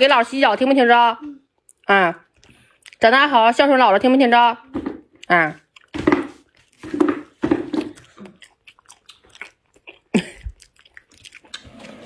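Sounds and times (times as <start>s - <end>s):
wet chewing and mouth clicks: 1.6s - 3.1s, 5.2s - 12.0s.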